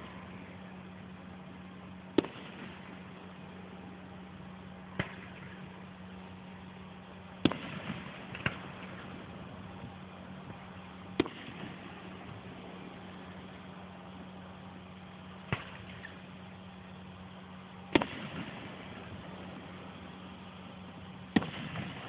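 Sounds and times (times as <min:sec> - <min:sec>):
firework crackling: 0:00.0 - 0:22.0
steady low hum: 0:00.0 - 0:22.0
distant firework booms: 0:21.3 - 0:22.0.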